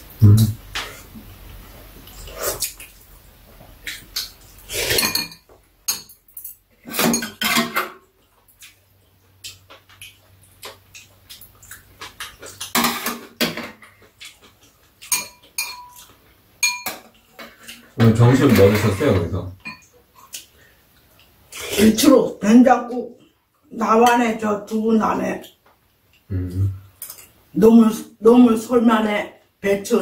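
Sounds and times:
metal utensils clinking on bowls: 4.8 - 8.0, 14.3 - 19.9.

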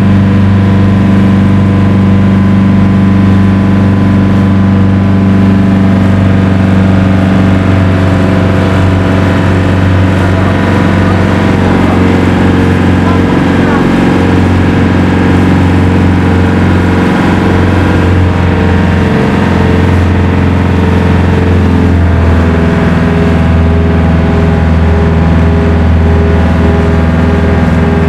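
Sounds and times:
engine running with low hum: 0.0 - 28.0.

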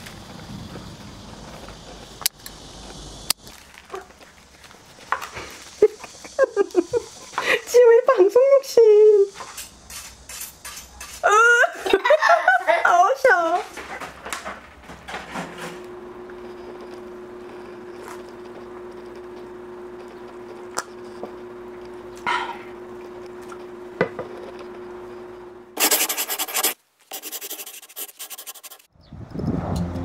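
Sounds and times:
steady low hum: 13.8 - 28.8
dry scratching and rubbing: 25.8 - 28.9.

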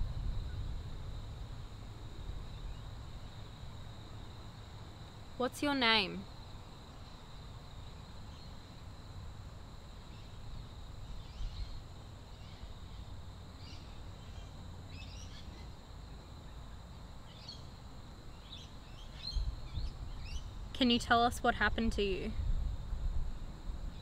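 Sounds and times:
low rumble: 0.0 - 2.6
high insect drone: 0.0 - 24.0.

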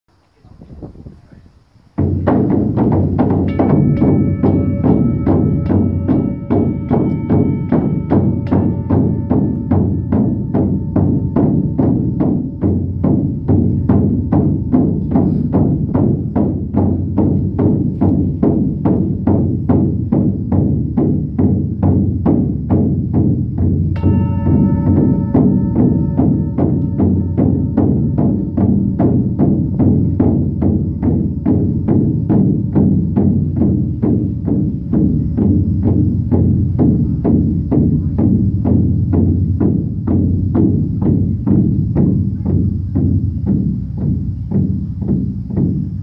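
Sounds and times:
frame drum beating: 1.9 - 46.0
singing bowls ringing: 3.4 - 13.4, 24.0 - 30.2.

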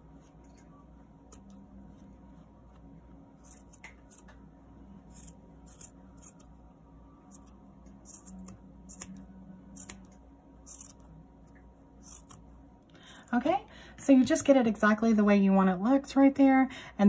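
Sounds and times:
scissors snipping yarn: 3.4 - 4.4, 5.1 - 6.5, 7.3 - 11.1, 12.0 - 12.4.

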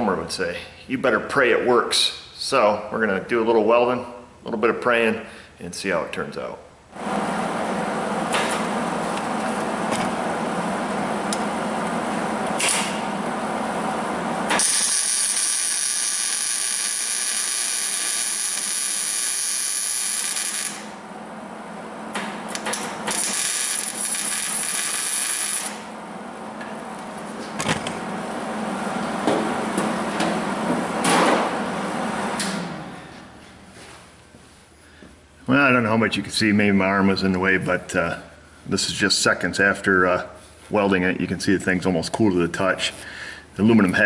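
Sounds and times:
welder arc buzzing: 7.0 - 27.2.

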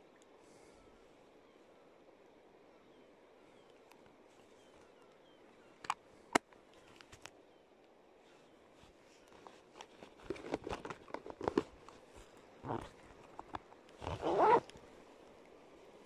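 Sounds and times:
fishing tackle rustles and clicks: 5.8 - 7.4, 8.2 - 14.9.

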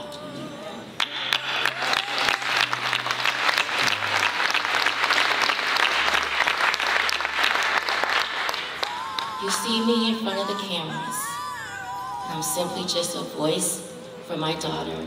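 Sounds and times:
congregation applauding: 1.0 - 12.7.

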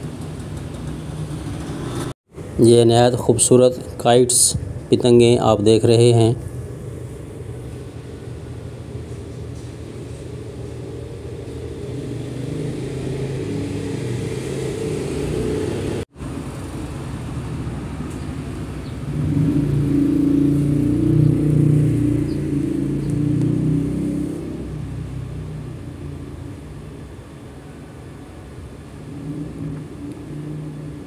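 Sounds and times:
indoor market hall rumble: 0.0 - 4.0, 6.0 - 31.0.

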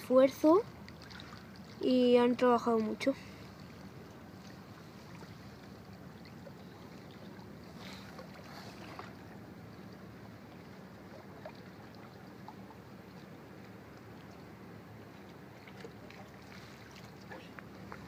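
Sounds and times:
steady low hum: 0.0 - 18.0
small waves lapping on stone: 10.6 - 18.0.

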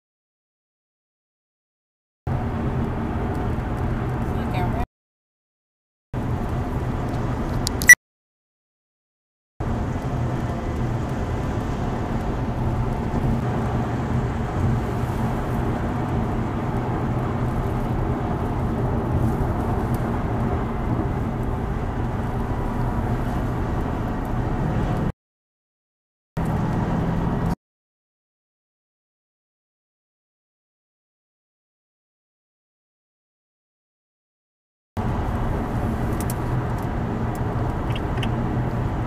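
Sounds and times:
car road and engine noise: 2.3 - 4.9, 6.2 - 8.0, 9.6 - 25.2, 26.4 - 27.6, 35.0 - 39.0.

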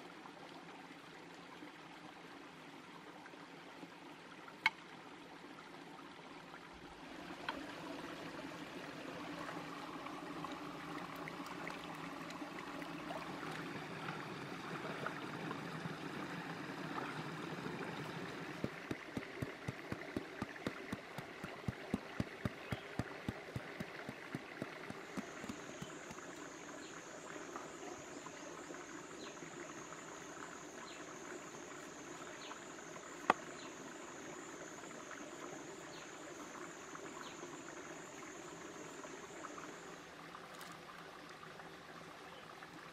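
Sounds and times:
stream water running: 0.0 - 42.9
cleaver chopping papaya: 18.6 - 26.2
high insect drone: 23.6 - 40.0.

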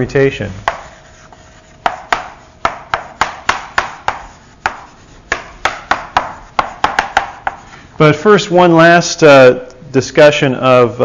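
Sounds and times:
chalk tapping and scraping on chalkboard: 0.0 - 7.9.

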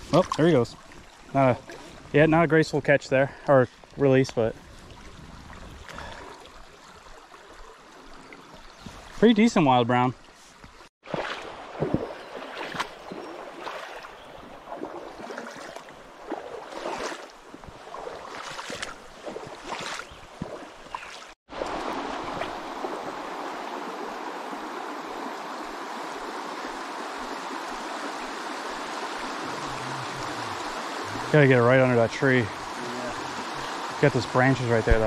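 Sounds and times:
creek water splashing and gurgling: 0.0 - 35.0
water rushing over rocks: 21.5 - 35.0.

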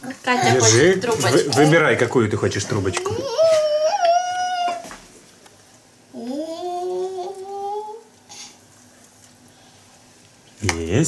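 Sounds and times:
child humming: 3.0 - 4.9, 6.1 - 8.4.

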